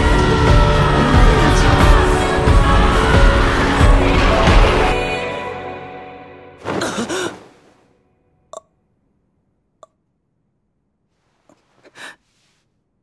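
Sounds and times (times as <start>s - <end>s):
person gasping and sighing: 6.7s - 7.7s, 11.8s - 12.2s.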